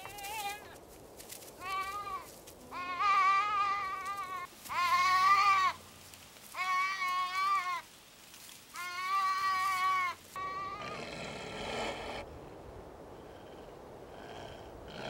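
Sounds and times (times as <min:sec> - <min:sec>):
sheep bleating in distress: 0:01.6 - 0:05.8, 0:06.5 - 0:07.8, 0:08.7 - 0:11.8.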